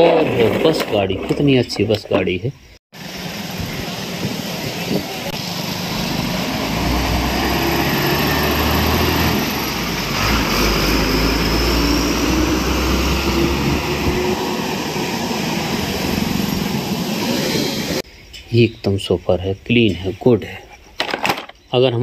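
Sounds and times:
road noise: 0:00.0 - 0:18.1
bus engine rumbling: 0:03.0 - 0:18.0.

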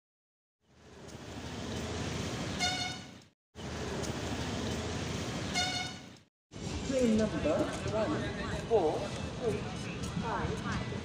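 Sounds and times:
street traffic noise: 0:00.6 - 0:11.0
short high vehicle horn toot: 0:02.6 - 0:03.2, 0:05.5 - 0:06.2.

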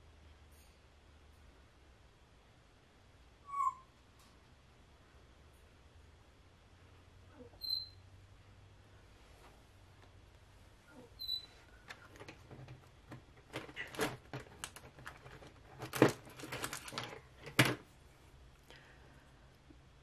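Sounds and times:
short high squeak: 0:07.6 - 0:08.0.

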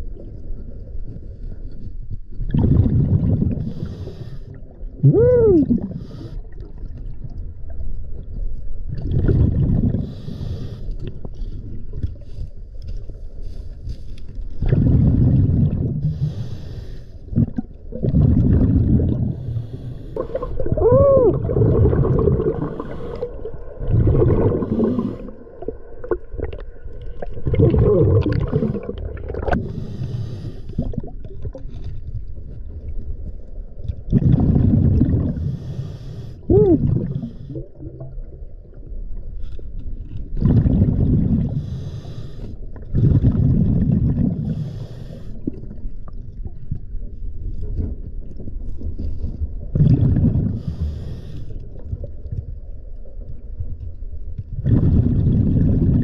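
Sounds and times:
exhaled bubbles: 0:02.4 - 0:07.8, 0:08.9 - 0:10.2, 0:14.6 - 0:16.4, 0:17.3 - 0:30.0, 0:30.7 - 0:31.8, 0:33.8 - 0:35.8, 0:36.4 - 0:39.3, 0:40.2 - 0:41.8, 0:42.7 - 0:44.8, 0:47.7 - 0:51.1, 0:54.5 - 0:56.0
diver breathing through regulator: 0:03.5 - 0:04.6, 0:05.8 - 0:06.6, 0:09.9 - 0:12.5, 0:16.0 - 0:17.4, 0:19.1 - 0:20.7, 0:21.8 - 0:23.6, 0:24.2 - 0:25.5, 0:27.8 - 0:31.0, 0:35.2 - 0:37.7, 0:41.2 - 0:43.5, 0:44.3 - 0:45.6, 0:50.4 - 0:51.7.

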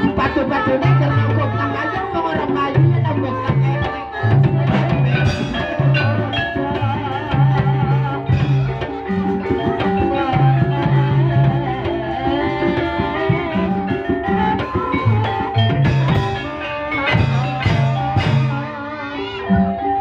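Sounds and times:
drumming: 0:00.0 - 0:20.0
keyed percussion instruments: 0:00.0 - 0:20.0.

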